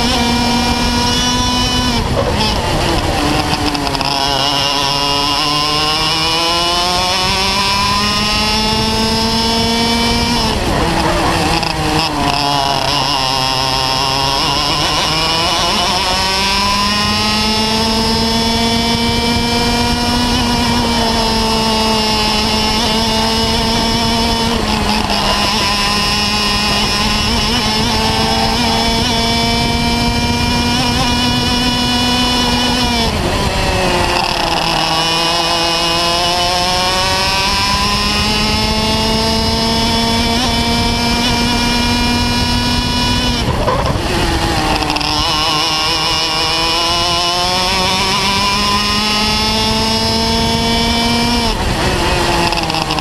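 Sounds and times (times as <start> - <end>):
kart engine revving: 0.0 - 53.0.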